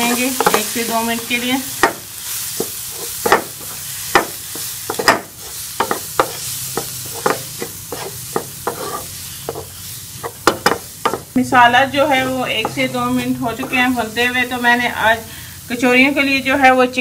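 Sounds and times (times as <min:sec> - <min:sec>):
wooden spatula scraping frying pan: 0:00.0 - 0:11.3
food sizzling: 0:00.0 - 0:17.0.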